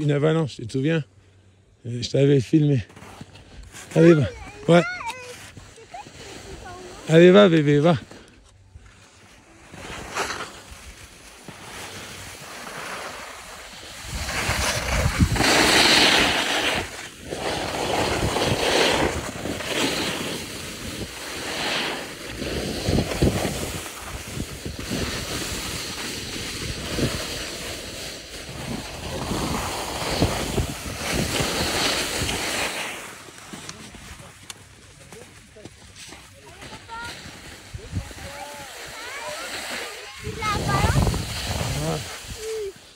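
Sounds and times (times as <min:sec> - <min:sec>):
skis scraping over snow: 0:01.9 - 0:42.9
wind on microphone: 0:13.9 - 0:19.8, 0:22.3 - 0:27.9, 0:28.5 - 0:32.5, 0:40.2 - 0:42.7.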